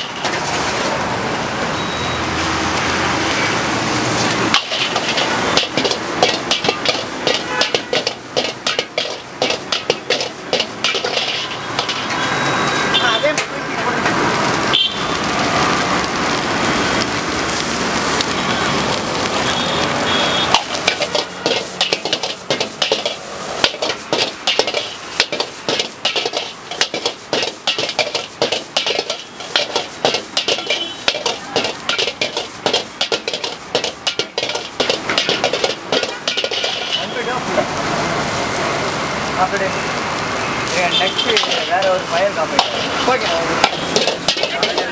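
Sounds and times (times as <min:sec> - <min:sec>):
rice sizzling in a wok: 0:00.0 - 0:44.9
metal ladle scraping a wok: 0:04.5 - 0:12.8, 0:20.5 - 0:37.2, 0:41.2 - 0:44.9.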